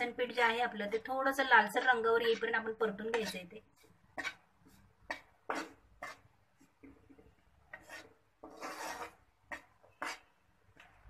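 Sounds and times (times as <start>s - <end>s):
steel spatula scraping a pan: 1.6s - 6.3s, 7.6s - 11.0s.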